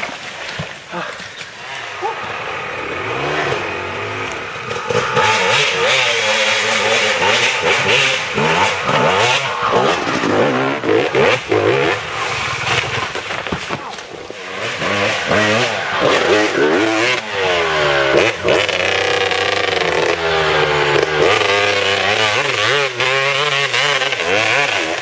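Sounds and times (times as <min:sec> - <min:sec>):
dirt bike engine revving: 0:01.6 - 0:25.0.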